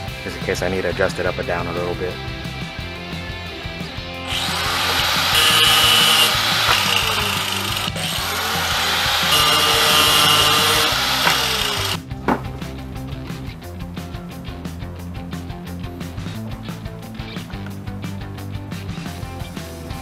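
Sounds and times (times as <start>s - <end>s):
power tool cutting plastic pipe: 4.3s - 12.0s.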